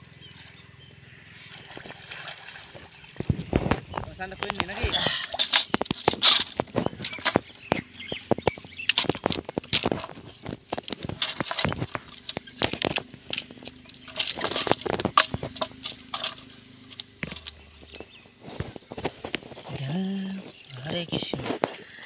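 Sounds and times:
cane sticks clattering: 4.4 - 20.7.

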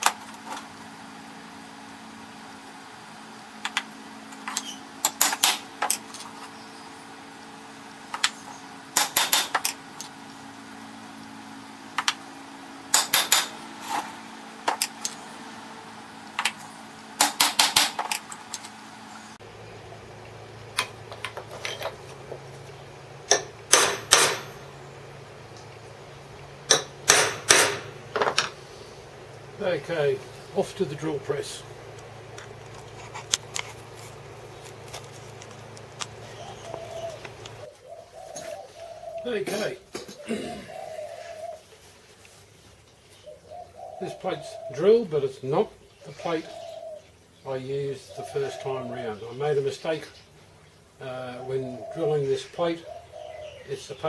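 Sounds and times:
hammer tapping metal punch: 9.0 - 9.8, 12.9 - 13.6, 23.3 - 24.6, 26.7 - 28.5.

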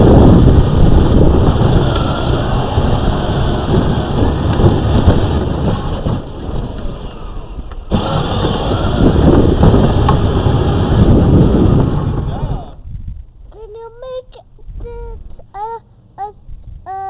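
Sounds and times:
plastic wheels rumbling over pavement: 0.0 - 13.2.

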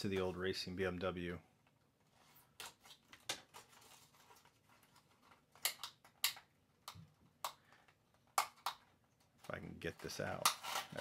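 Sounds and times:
plastic packaging clicks: 2.6 - 11.0.

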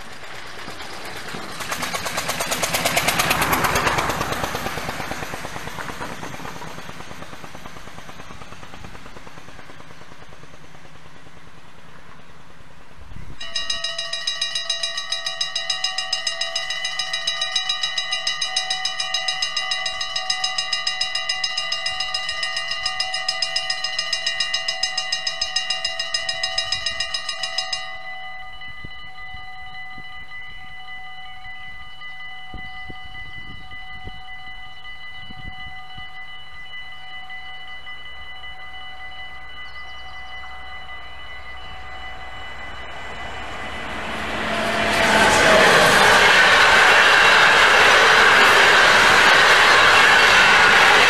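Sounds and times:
level crossing warning bells: 1.5 - 6.2, 13.4 - 51.0
vehicle engine driving past: 42.8 - 51.0.

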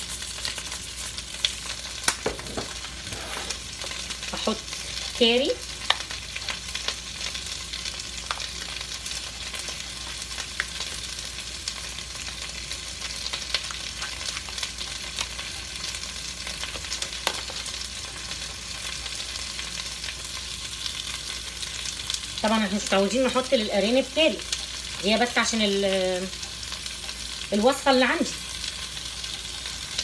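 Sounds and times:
vegetables sizzling in oil: 0.0 - 30.0.

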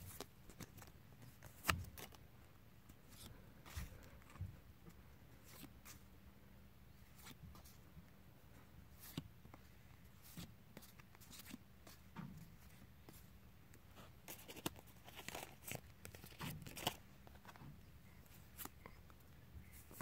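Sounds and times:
trading cards rustling: 14.2 - 17.6.

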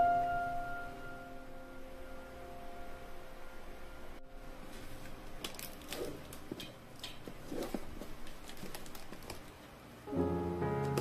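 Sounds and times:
packing tape and cardboard crinkling: 4.7 - 9.8
small clicks and rustles: 5.4 - 9.8.

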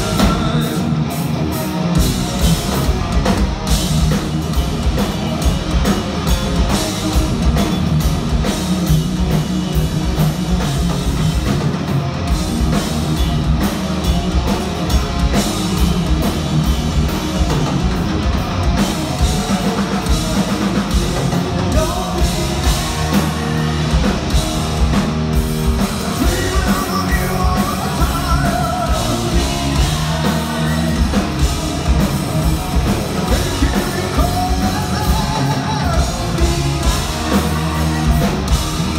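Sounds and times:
heavy metal band playing live: 0.0 - 38.9.

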